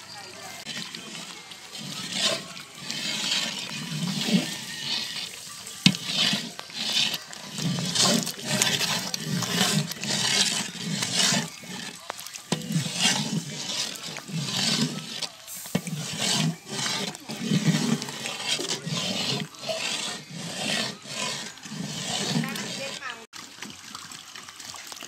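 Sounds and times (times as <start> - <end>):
ladle stirring thick curry: 0.0 - 24.2.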